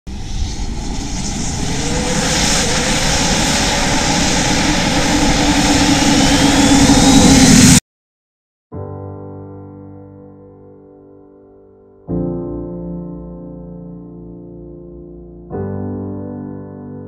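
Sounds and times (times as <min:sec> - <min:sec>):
faint rising whine: 0:00.1 - 0:07.8
jet engine roar: 0:00.1 - 0:07.8.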